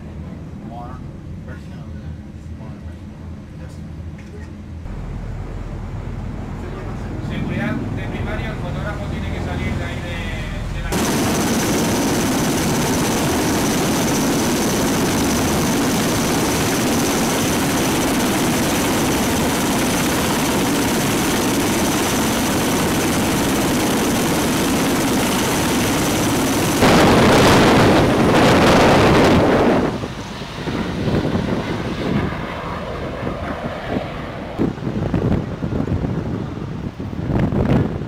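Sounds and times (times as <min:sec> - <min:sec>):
aircraft engines droning: 0:00.0 - 0:38.0
wind buffeting microphone: 0:10.1 - 0:38.0.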